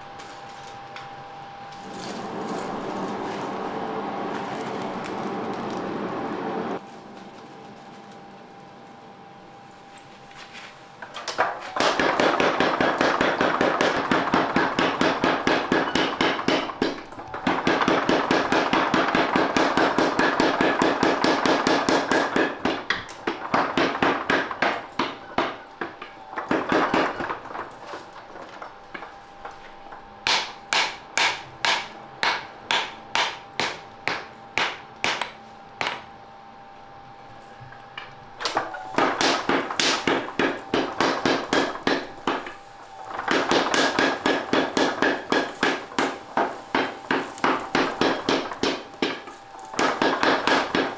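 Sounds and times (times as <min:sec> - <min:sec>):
power hammer pounding steel: 0:11.2 - 0:36.1, 0:38.4 - 0:50.9
ringing strikes on hot metal: 0:11.7 - 0:18.7.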